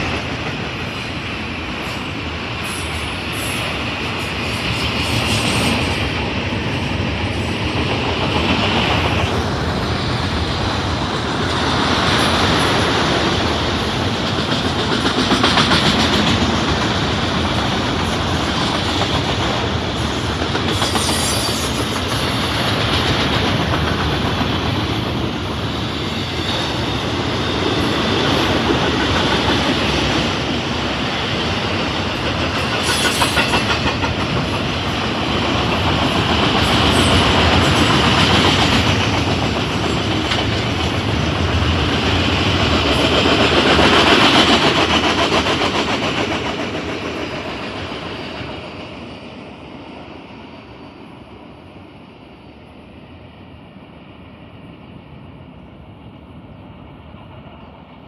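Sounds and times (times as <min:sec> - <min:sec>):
freight train rumbling past: 0:00.0 - 0:58.0
high-pitched train squeals: 0:00.0 - 0:58.0
wheels clacking over rail joints: 0:07.6 - 0:47.8.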